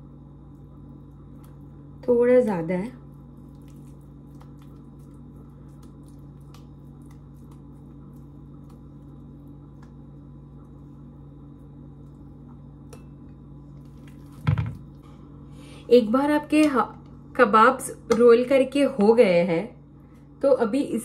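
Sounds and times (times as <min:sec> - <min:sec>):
squishing of mashed mixture in hands: 0:00.0 - 0:15.4
steady low hum: 0:00.0 - 0:21.0.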